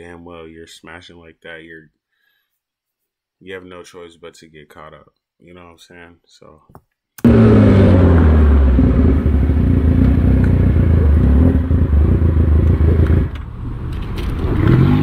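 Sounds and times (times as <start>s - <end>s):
motorcycle engine running: 7.2s - 13.4s.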